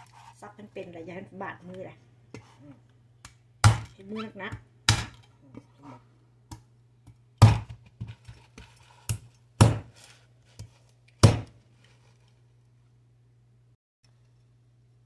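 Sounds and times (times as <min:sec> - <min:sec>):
cleaver chopping coconut: 0:03.6 - 0:04.0, 0:04.9 - 0:05.2, 0:07.4 - 0:07.8, 0:09.1 - 0:10.0, 0:11.2 - 0:11.6.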